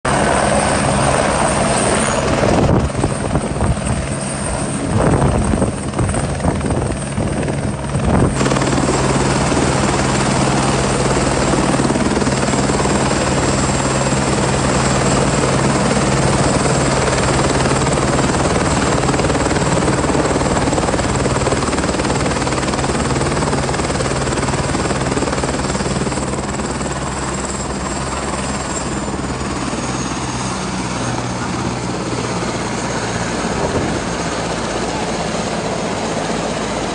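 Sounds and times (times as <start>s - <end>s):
helicopter rotor beat: 0.1s - 36.9s
turbine whine: 0.1s - 36.9s.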